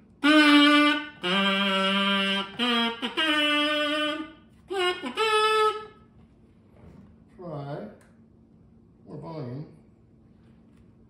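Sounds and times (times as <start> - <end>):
electric kazoo tune: 0.0 - 6.1.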